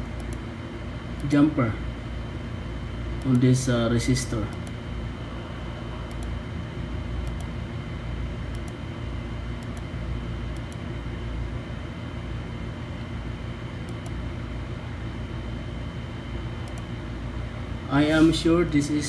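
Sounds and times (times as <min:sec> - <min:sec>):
low room rumble: 0:00.0 - 0:19.0
faint high whine: 0:02.8 - 0:08.8.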